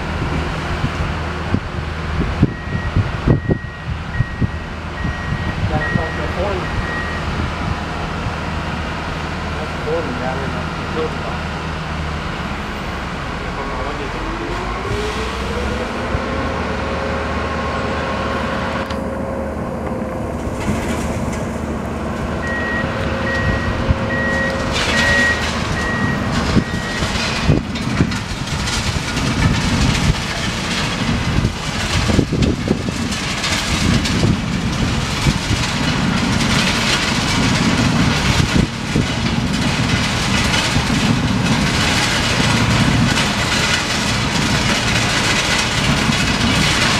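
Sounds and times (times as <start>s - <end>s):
diesel engine whining: 0.0s - 46.9s
beeping alarm: 2.5s - 7.3s, 22.4s - 27.1s
plow scraping through crushed stone: 9.0s - 46.9s.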